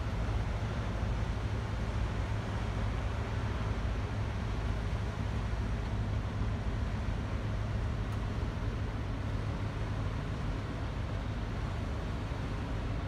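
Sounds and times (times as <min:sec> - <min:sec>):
ship engine rumble: 0:00.0 - 0:13.0
wind and water hiss: 0:00.0 - 0:13.0.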